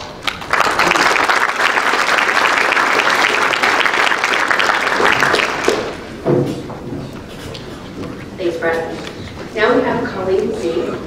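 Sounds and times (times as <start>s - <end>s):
small audience applauding: 0.0s - 6.1s.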